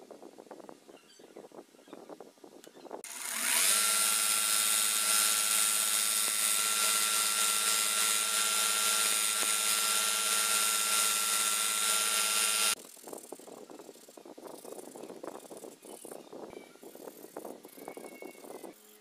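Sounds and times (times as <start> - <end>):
belt sander running: 3.0 - 12.8.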